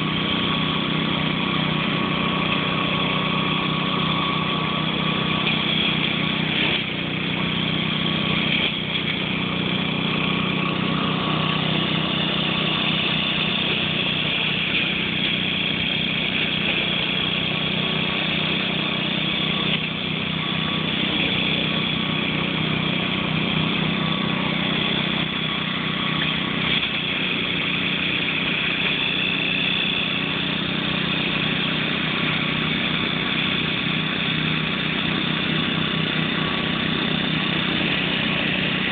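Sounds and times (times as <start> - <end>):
mower engine running: 0.0 - 38.9.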